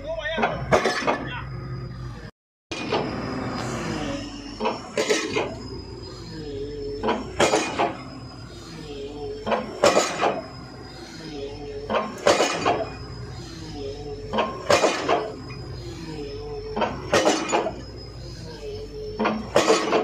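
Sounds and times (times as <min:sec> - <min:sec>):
machine engine hum: 0:00.0 - 0:20.0
pile hammer metallic clangs: 0:00.3 - 0:01.4, 0:04.6 - 0:05.6, 0:07.0 - 0:08.0, 0:09.4 - 0:10.4, 0:11.9 - 0:13.0, 0:14.3 - 0:15.4, 0:16.7 - 0:17.8, 0:19.2 - 0:20.0.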